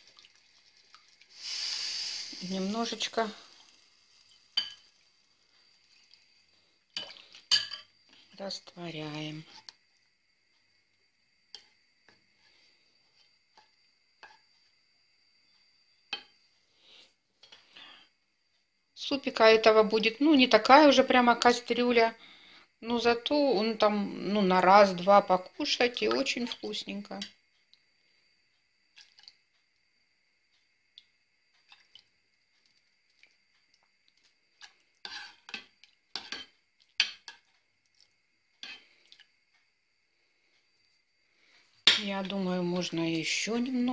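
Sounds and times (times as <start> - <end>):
ladle stirring soup: 31.6 - 39.4
ladle scraping against pot: 35.0 - 37.4.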